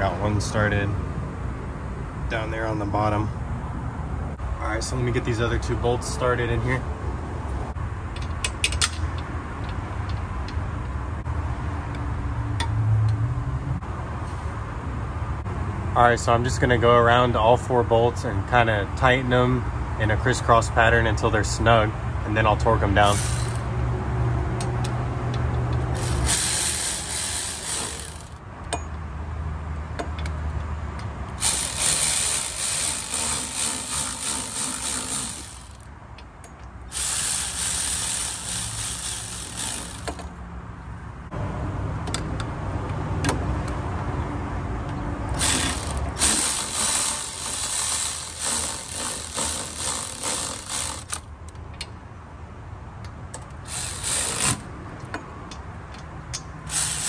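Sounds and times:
cordless ratchet running: 0:23.0 - 0:23.7, 0:25.9 - 0:28.4, 0:31.4 - 0:35.9, 0:36.9 - 0:40.3, 0:45.4 - 0:51.3, 0:53.6 - 0:54.7, 0:56.7 - 0:57.0.

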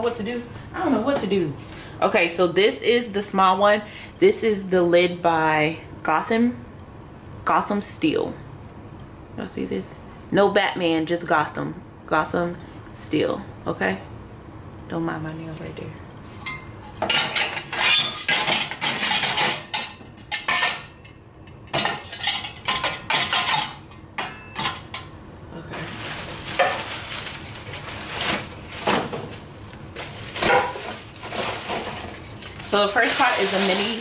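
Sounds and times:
glass lids clinking on metal rack: 0:16.4 - 0:21.1, 0:21.7 - 0:25.1
plastic wrap and cardboard rustling: 0:25.6 - 0:34.0.

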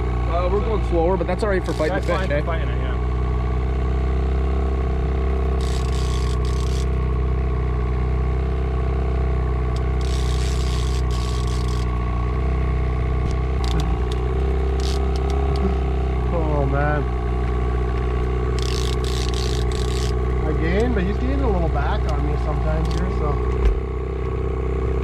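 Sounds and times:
boat motor humming: 0:00.0 - 0:25.0
sharp clicks: 0:05.6 - 0:06.9, 0:13.2 - 0:15.7, 0:18.0 - 0:20.2, 0:22.0 - 0:23.7.

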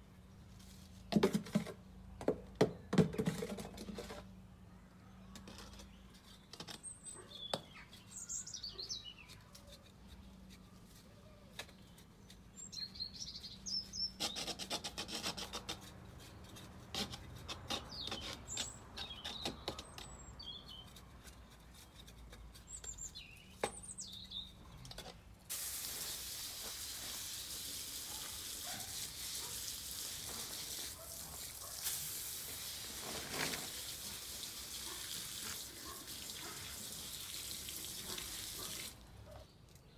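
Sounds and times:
scraping and rubbing soil: 0:00.5 - 0:01.9, 0:03.1 - 0:04.4, 0:09.0 - 0:25.3, 0:25.9 - 0:37.1
birds chirping: 0:04.7 - 0:09.7, 0:11.0 - 0:14.4, 0:21.7 - 0:25.4
hose nozzle spraying water: 0:25.5 - 0:39.0.

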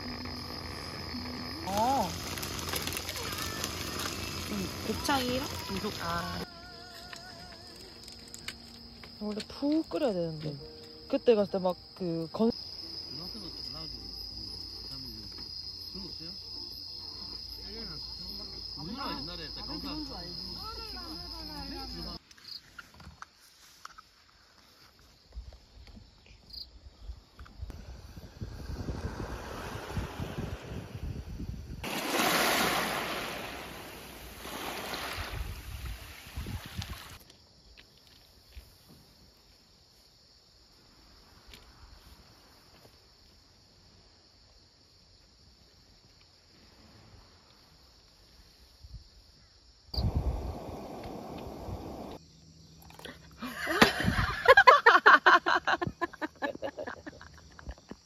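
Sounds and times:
crickets chirping: 0:00.0 - 0:58.0
wind buffeting microphone: 0:27.7 - 0:31.9, 0:35.2 - 0:37.0, 0:50.0 - 0:52.1
waves washing over pebbles: 0:31.8 - 0:37.2.

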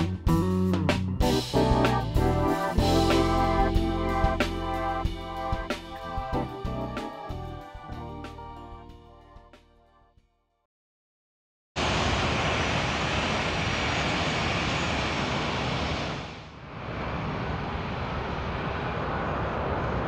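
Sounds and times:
jet engines roaring: 0:11.8 - 0:20.0.

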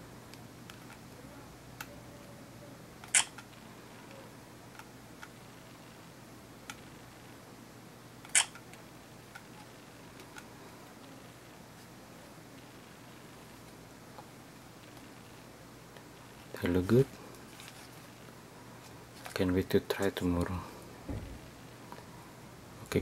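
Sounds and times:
camera shutter clicks: 0:03.0 - 0:03.4.

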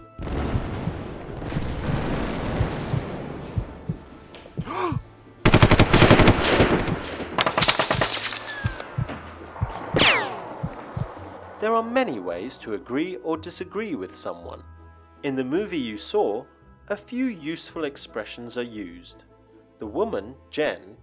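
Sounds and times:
machine-gun fire: 0:00.2 - 0:03.9, 0:05.4 - 0:08.4
dense battle rumble: 0:00.2 - 0:04.1, 0:08.7 - 0:12.2.

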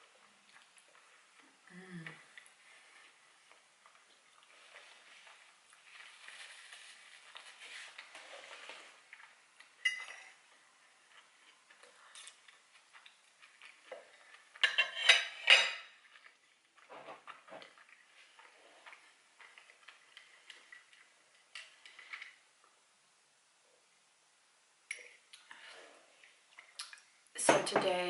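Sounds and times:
soft rustle: 0:02.2 - 0:09.7.

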